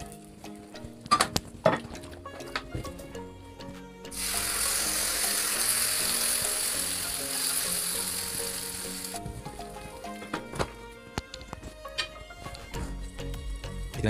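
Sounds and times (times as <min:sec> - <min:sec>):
batter sizzling in hot oil: 0:04.2 - 0:09.2.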